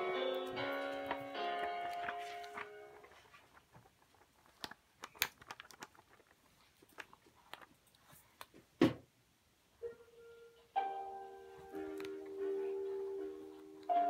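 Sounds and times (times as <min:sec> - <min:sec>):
book pages turning: 0:00.5 - 0:08.5
thump: 0:08.8 - 0:09.0.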